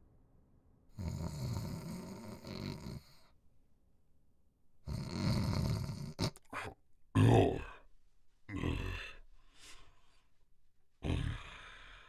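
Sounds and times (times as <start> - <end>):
cartoon rasping snores: 0.9 - 3.3, 4.8 - 7.8, 11.0 - 12.0.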